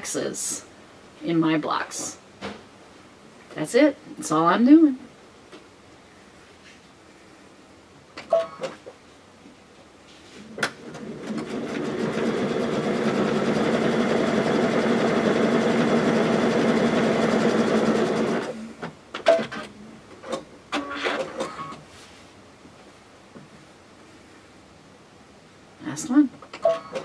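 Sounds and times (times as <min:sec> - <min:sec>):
sewing machine stitching: 0:10.7 - 0:18.6.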